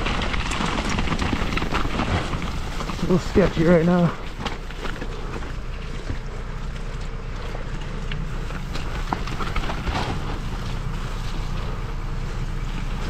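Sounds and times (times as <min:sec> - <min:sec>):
bike knocking and rattling: 0:00.0 - 0:13.0
bike tyres rumbling on dirt and rock: 0:00.0 - 0:13.0.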